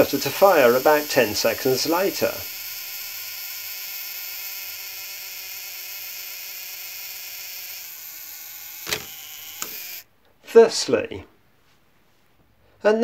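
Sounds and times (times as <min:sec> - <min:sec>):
clockwork self-timer whirring: 0:00.0 - 0:10.1.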